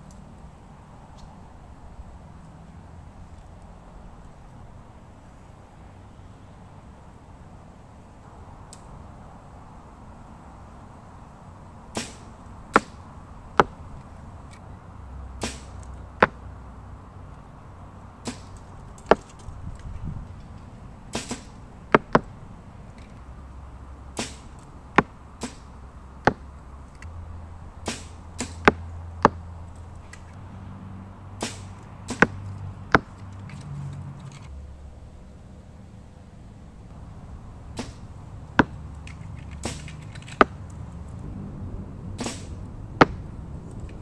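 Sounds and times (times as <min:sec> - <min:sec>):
bowstrings snapping: 0:11.9 - 0:13.0, 0:15.4 - 0:16.4, 0:21.1 - 0:22.3, 0:24.2 - 0:25.7, 0:27.8 - 0:30.4, 0:31.4 - 0:34.5, 0:37.7 - 0:41.3, 0:42.2 - 0:44.0.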